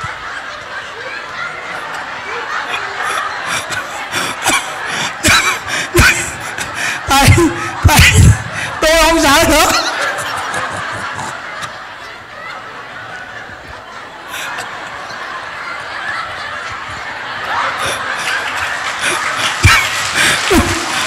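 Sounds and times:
crowd laughing: 0.0s - 21.0s
scattered clapping: 16.8s - 21.0s.

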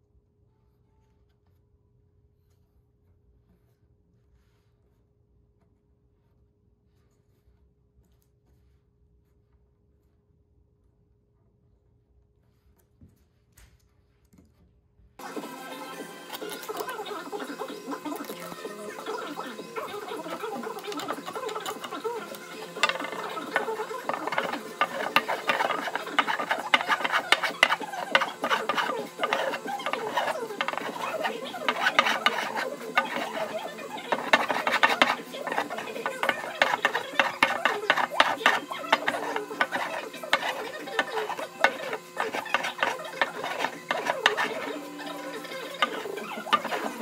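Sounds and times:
router plane scraping wood: 15.2s - 47.0s.

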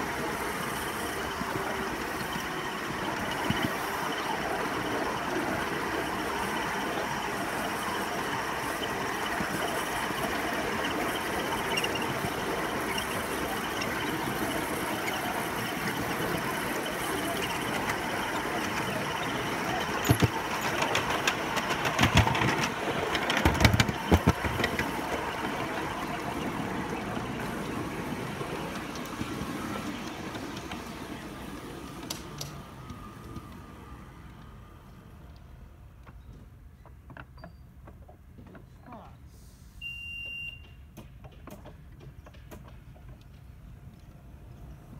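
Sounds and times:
sharp clacks of track: 0.0s - 33.6s
train wheels rolling on rails: 0.0s - 39.0s, 40.6s - 44.9s.

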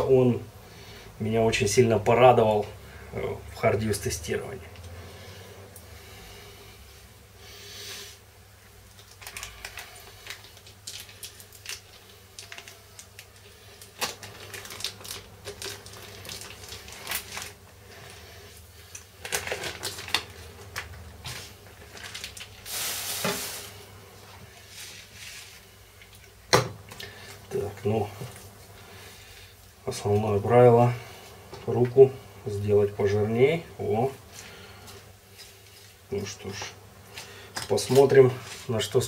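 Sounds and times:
plastic wrapping crinkling: 8.9s - 23.9s.

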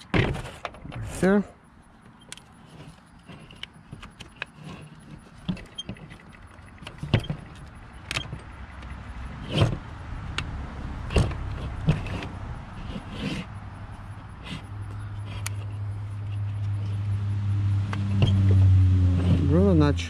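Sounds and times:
metal clicks and knocks: 2.0s - 13.0s.

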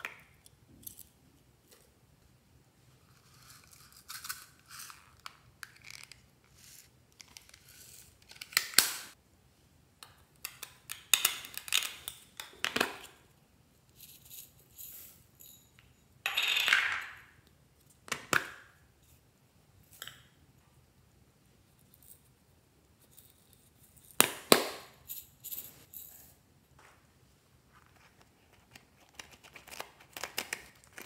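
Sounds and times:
beads rattling inside containers: 14.0s - 15.7s.

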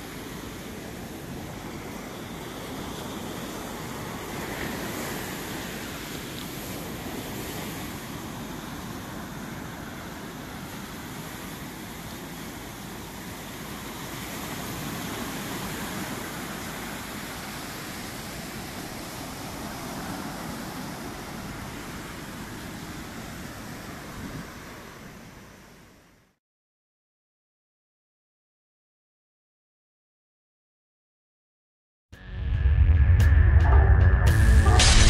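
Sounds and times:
steady rushing outdoor noise: 0.0s - 26.0s.

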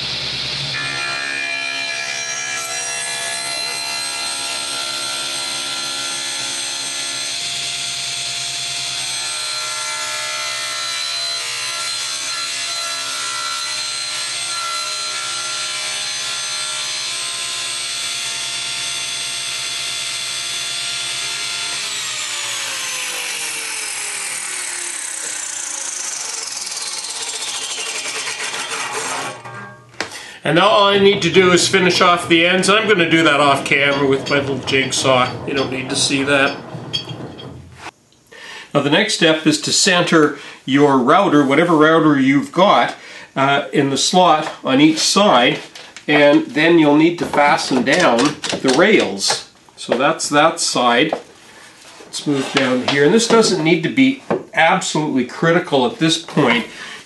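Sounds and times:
saw blade whine spinning down: 0.0s - 29.8s, 30.5s - 37.9s
table saw cutting wood: 0.0s - 38.0s, 51.6s - 54.3s.

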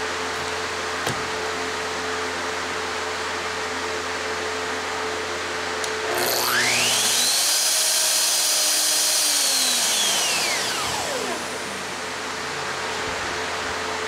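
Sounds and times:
shop fan humming: 0.0s - 14.0s
router motor whine: 5.8s - 13.0s.

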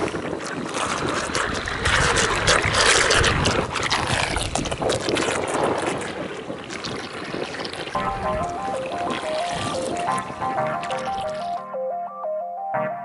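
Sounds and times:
wind buffeting microphone: 0.0s - 8.6s.

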